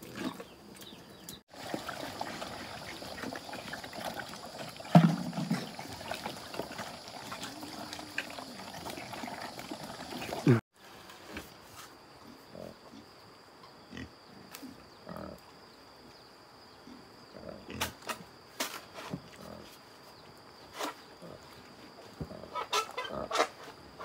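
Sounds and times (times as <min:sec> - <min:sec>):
pigs grunting: 0:01.7 - 0:10.6, 0:22.2 - 0:23.6.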